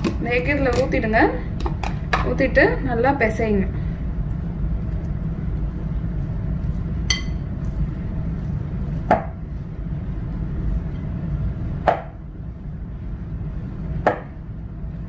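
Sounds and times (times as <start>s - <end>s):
steady low hum: 0.0s - 15.0s
hands kneading dough in a bowl: 4.2s - 10.9s
clink against glass bowl: 7.1s - 7.4s.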